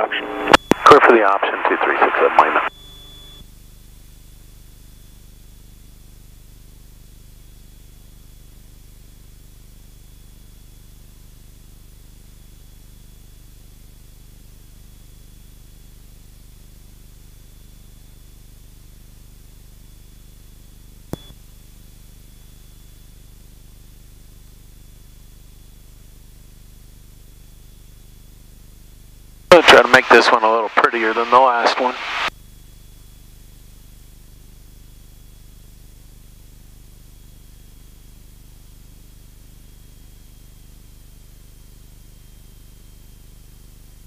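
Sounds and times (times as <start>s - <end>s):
high whine: 29.5s - 32.3s.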